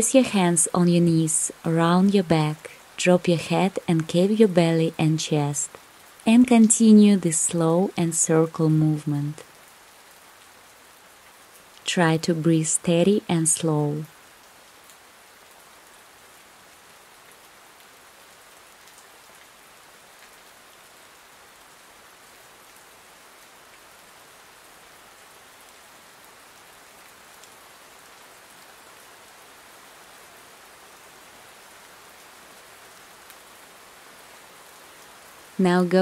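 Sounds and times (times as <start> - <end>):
soft rain hiss: 0.0 - 36.0
raindrop ticks: 3.7 - 4.4.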